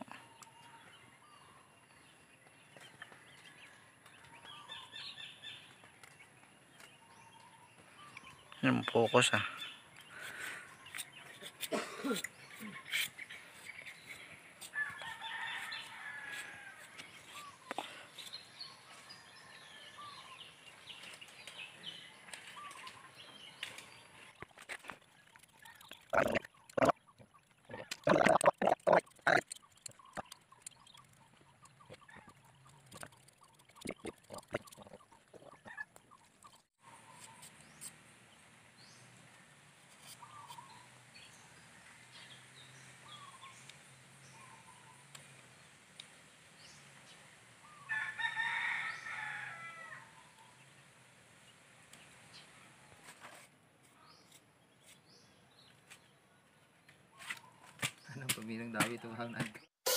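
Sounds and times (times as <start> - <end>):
chickens clucking: 25.5 - 37.4.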